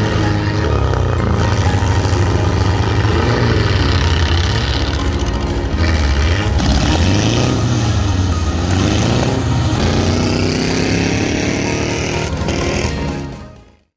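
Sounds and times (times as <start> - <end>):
car engines revving: 0.0 - 13.9.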